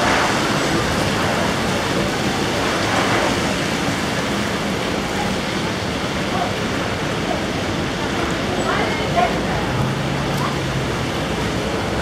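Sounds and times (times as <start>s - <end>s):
heavy rain: 0.0s - 12.0s
tyres swishing through water: 0.0s - 12.0s.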